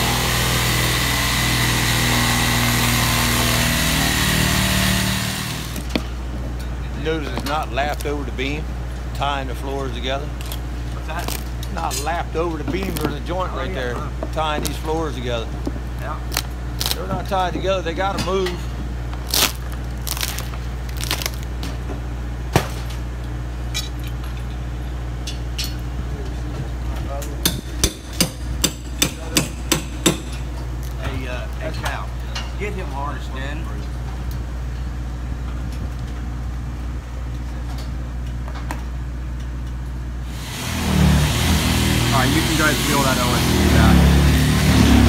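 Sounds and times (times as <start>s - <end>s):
small engine running: 0.0s - 6.0s, 40.2s - 45.0s
steady low hum: 5.3s - 40.4s
plywood cracking and snapping: 10.4s - 11.7s, 16.3s - 17.0s, 19.2s - 21.6s.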